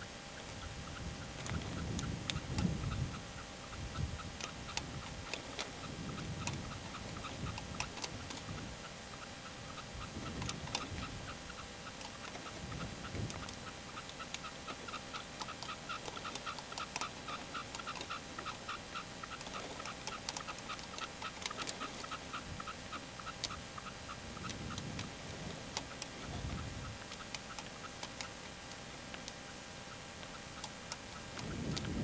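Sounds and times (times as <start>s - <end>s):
partridge calling: 0.0s - 32.0s
sharp clicks: 0.4s - 32.0s.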